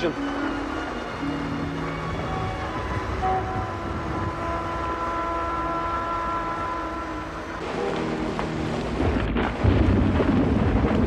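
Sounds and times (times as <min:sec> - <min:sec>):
dramatic orchestral score: 0:00.0 - 0:11.0
heavy rain: 0:00.0 - 0:11.0
thunder: 0:07.6 - 0:11.0.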